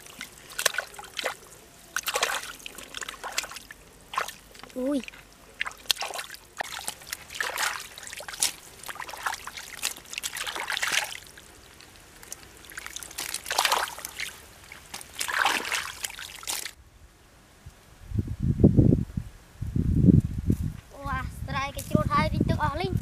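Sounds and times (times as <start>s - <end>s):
hands splashing in water: 0.0s - 16.8s
water trickling: 0.0s - 16.8s.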